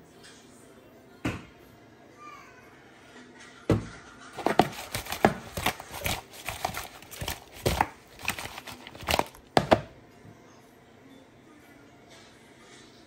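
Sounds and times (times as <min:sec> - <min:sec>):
plastic basin of fish clattering: 0:04.4 - 0:09.9.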